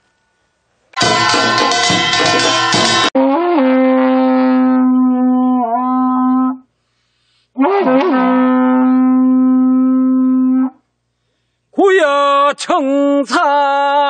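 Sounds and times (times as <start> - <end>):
hand-held horn blasts: 1.0 - 6.7, 7.6 - 10.8.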